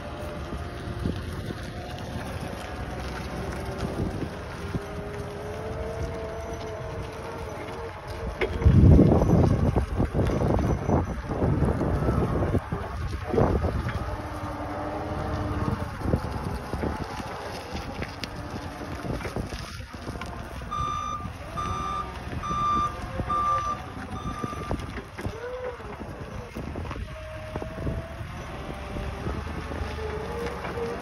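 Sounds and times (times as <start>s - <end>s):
forklift engine running: 0.0s - 31.0s
reversing alarm beeping: 20.7s - 24.8s.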